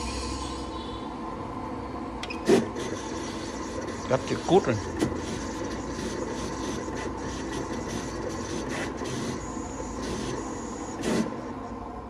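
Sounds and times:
thin high whine: 0.0 - 8.0
cutting plotter motors whirring: 2.2 - 12.0.

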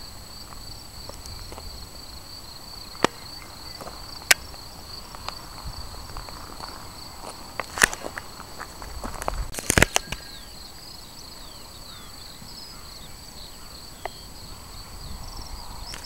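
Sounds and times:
crickets chirring: 0.0 - 16.0
sharp clicks: 9.5 - 10.3.

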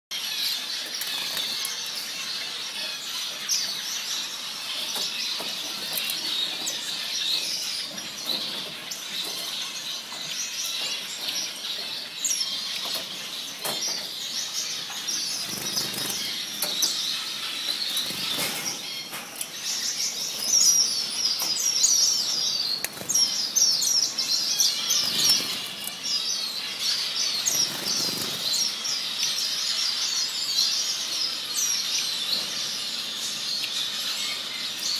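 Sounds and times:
finches chirping: 0.1 - 34.9.

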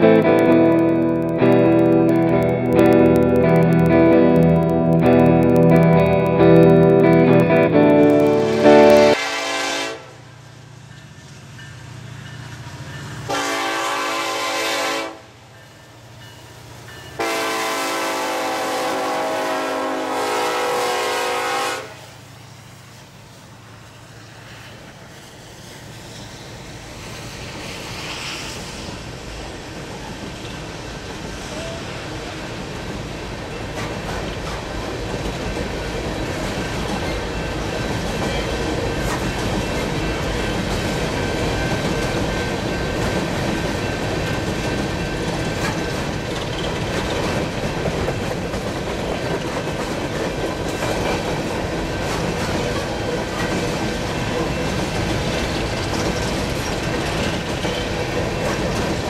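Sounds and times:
train wheels rushing on rails: 0.0 - 59.0
locomotive horn blasts: 8.4 - 10.2, 13.3 - 15.3, 17.2 - 22.1.

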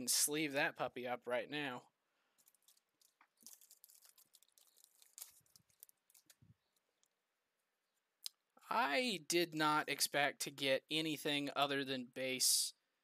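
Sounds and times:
plastic card sleeves rustling: 2.4 - 7.0.

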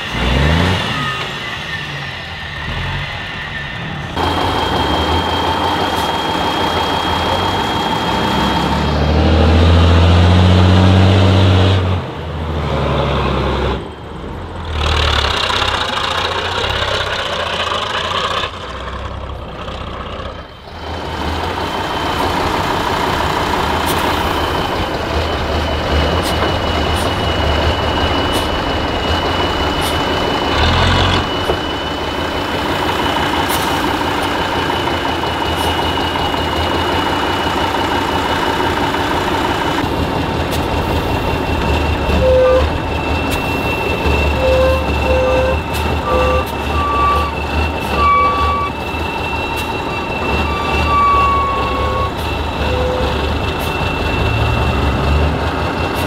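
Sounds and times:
high-pitched whine: 0.0 - 10.0
truck engine running hard: 0.0 - 56.0
short beeps: 42.1 - 55.2.

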